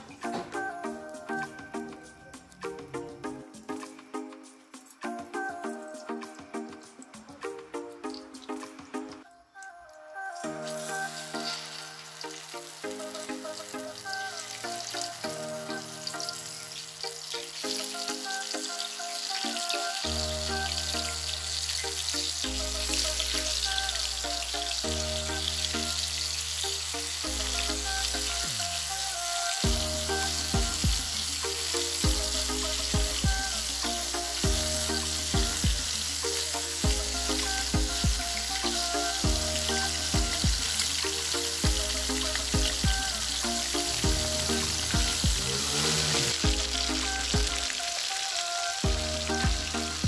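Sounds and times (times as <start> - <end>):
fish frying in hot oil: 15.8 - 50.0
background music with bass: 20.0 - 48.0, 48.8 - 50.0
drum beat: 30.6 - 31.1, 33.0 - 33.4, 35.4 - 35.9, 37.8 - 38.2, 39.2 - 39.5, 40.2 - 40.7, 41.6 - 41.9, 42.6 - 43.0, 44.0 - 46.7, 47.3 - 47.6, 48.9 - 49.8.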